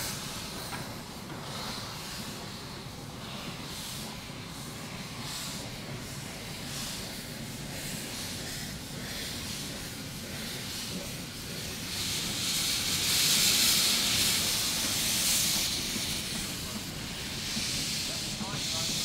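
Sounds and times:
steam locomotive hissing: 0.0s - 19.0s.

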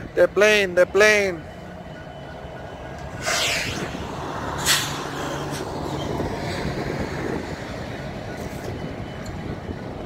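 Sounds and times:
diesel train idling hum: 0.0s - 10.0s
air brake hissing bursts: 3.2s - 3.9s, 4.6s - 5.0s.

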